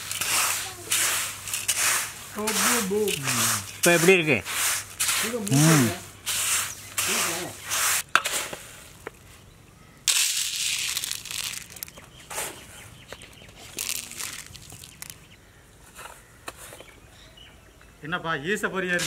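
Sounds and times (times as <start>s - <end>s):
snacks poured onto paper plates: 0.0s - 4.1s, 10.1s - 12.0s, 13.6s - 15.2s
dry snacks rattling in steel bowl: 0.0s - 4.2s, 10.1s - 12.0s, 13.7s - 15.2s.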